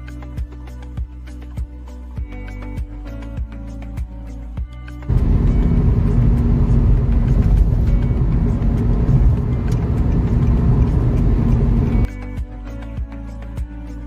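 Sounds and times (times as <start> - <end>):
car engine and tyre noise: 5.1 - 12.1.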